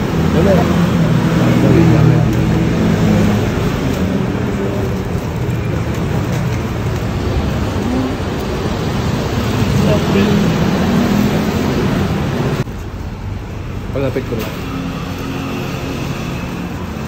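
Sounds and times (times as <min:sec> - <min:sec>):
road traffic noise: 0:00.0 - 0:17.0.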